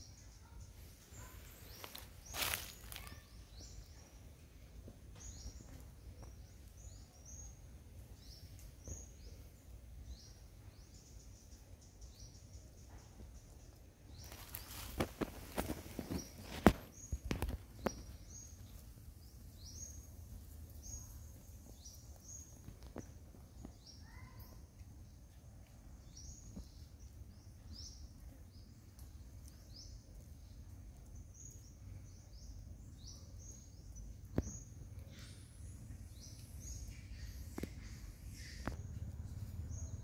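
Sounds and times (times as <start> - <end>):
low steady rumble: 37.0 - 40.0.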